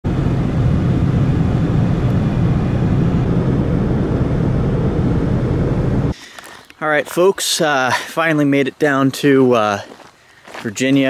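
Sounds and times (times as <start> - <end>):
car road and wind noise: 0.0 - 6.2.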